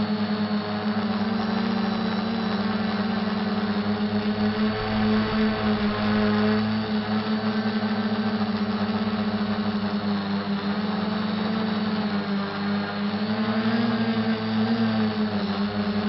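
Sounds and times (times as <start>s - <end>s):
drone propellers buzzing: 0.2s - 9.8s.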